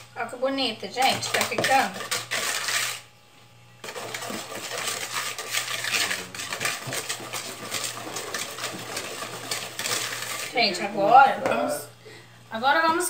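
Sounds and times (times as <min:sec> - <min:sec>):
whisk beating batter in plastic bowl: 0:01.0 - 0:03.0, 0:03.8 - 0:11.1.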